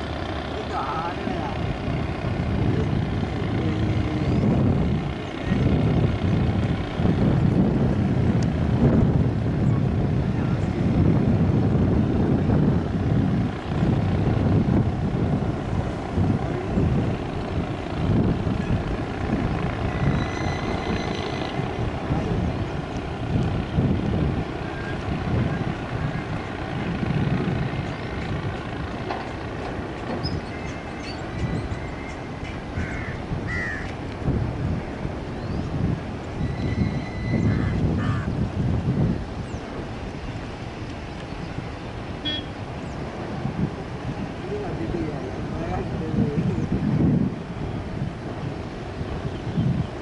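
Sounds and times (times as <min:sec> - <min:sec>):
distant turboprop airliner engine: 0:00.0 - 0:50.0
wind rumble on microphone: 0:00.0 - 0:50.0
bird chirps: 0:20.1 - 0:21.5, 0:30.2 - 0:32.3.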